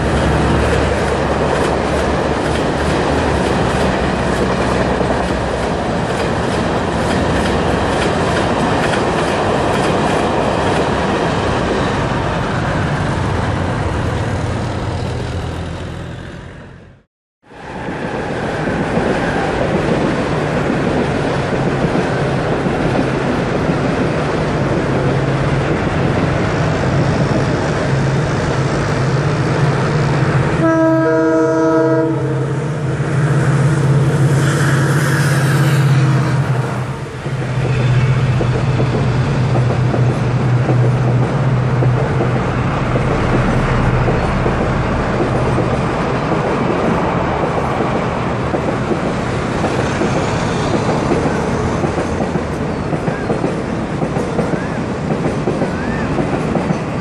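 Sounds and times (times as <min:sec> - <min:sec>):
diesel locomotive engine drone: 0:00.0 - 0:57.0
train coaches rolling by: 0:00.0 - 0:57.0
train horn: 0:30.5 - 0:38.8.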